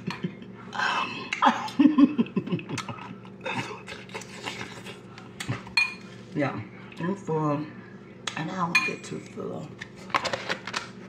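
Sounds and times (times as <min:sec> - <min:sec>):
steady low hum: 0:00.0 - 0:11.0
chewing and mouth noises: 0:02.8 - 0:05.6.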